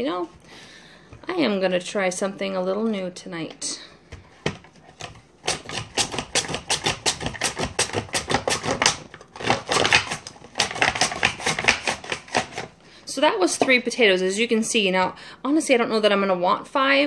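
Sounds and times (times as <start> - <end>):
potato slicing on mandoline: 4.9 - 12.7.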